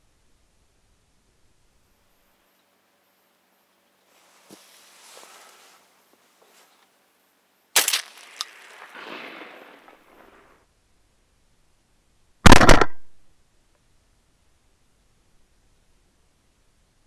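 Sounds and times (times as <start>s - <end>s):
faint rustle: 3.6s - 10.6s
shotgun shots: 7.8s - 10.5s, 12.4s - 13.1s.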